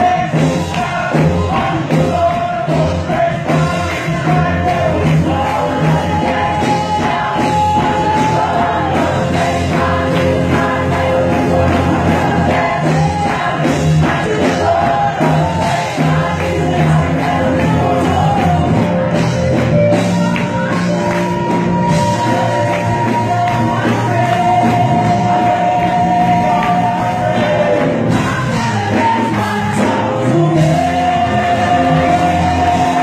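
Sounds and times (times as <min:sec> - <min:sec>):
gospel choir and band: 0:00.0 - 0:33.0.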